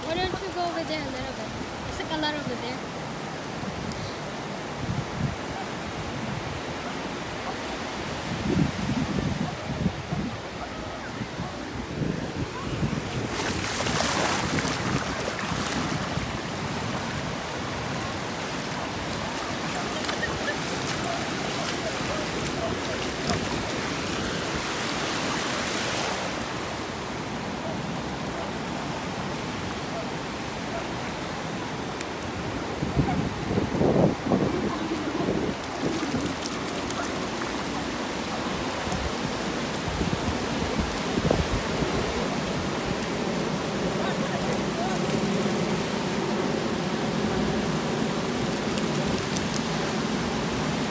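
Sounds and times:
ocean surf: 0:00.0 - 0:50.9
waves washing over sand: 0:00.0 - 0:50.9
wind rumbling on microphone: 0:03.6 - 0:50.9
paws and feet splashing in water: 0:17.8 - 0:26.3, 0:34.4 - 0:41.2.

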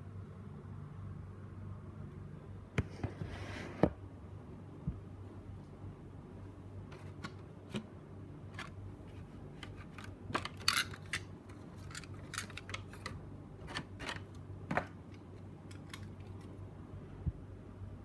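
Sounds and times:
steady low hum: 0:00.0 - 0:18.0
small plastic parts clicking: 0:09.6 - 0:14.4.

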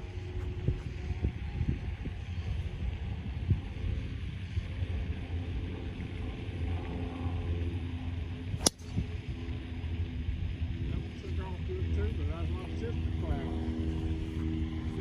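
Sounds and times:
wind rumble on microphone: 0:00.0 - 0:15.0
golf club striking ball: 0:08.6 - 0:09.0.

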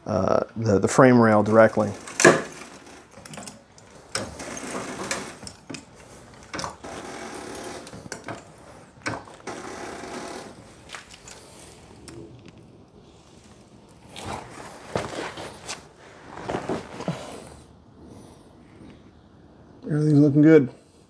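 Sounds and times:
jack clicks: 0:01.8 - 0:12.6
floor jack pumping strokes: 0:03.9 - 0:11.8.

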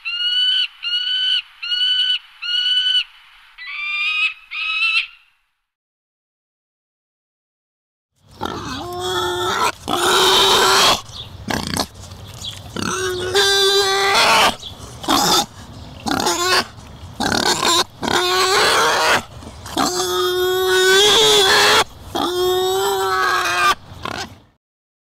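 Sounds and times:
wild boar squealing and grunting: 0:08.4 - 0:24.5.

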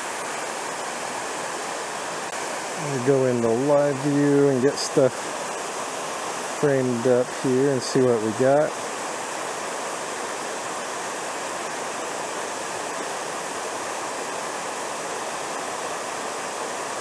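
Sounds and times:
waterfall splashing: 0:00.0 - 0:17.0.

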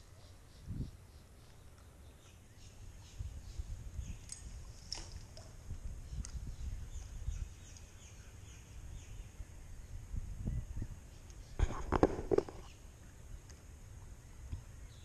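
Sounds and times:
wind noise on microphone: 0:00.5 - 0:01.0, 0:02.8 - 0:12.7.

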